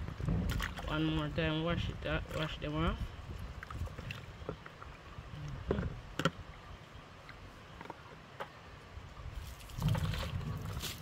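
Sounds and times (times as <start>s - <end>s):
water pouring onto concrete: 9.4s - 11.0s.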